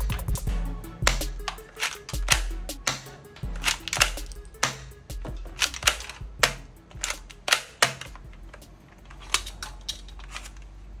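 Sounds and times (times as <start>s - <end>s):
plastic toy pistol clicking: 1.0s - 10.6s.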